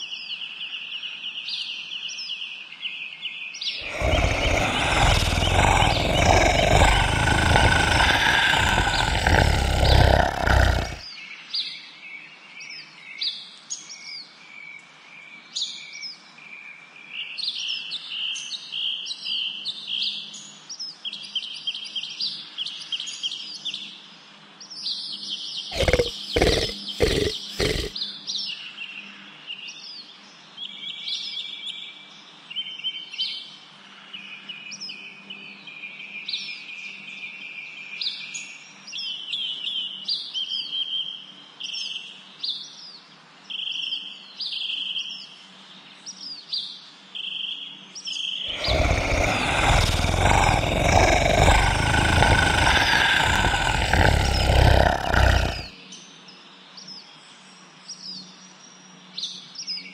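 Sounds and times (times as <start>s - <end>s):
birds chirping: 3.8s - 11.0s, 25.8s - 27.9s, 48.5s - 55.7s.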